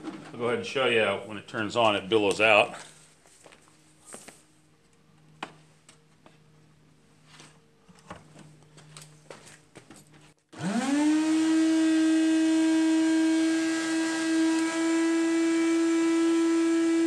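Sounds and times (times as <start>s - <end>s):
shop vacuum motor whining: 10.4s - 17.0s.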